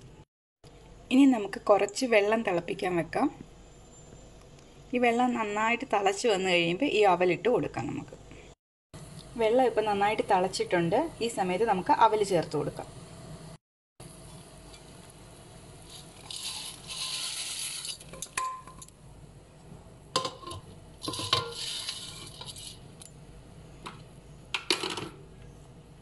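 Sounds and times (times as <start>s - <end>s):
rice pouring into water hissing: 15.6s - 18.1s.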